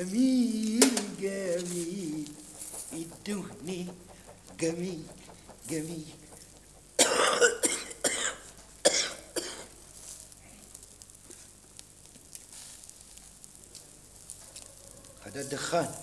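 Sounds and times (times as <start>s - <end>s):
meat sizzling on charcoal grill: 0.0s - 16.0s
man coughing: 7.0s - 9.7s.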